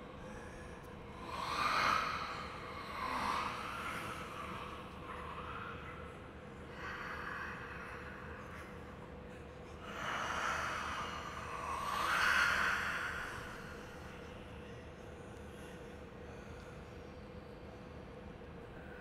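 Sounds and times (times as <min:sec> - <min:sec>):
woman breathing heavily: 0:00.0 - 0:14.7
faint steady hum: 0:00.0 - 0:19.0.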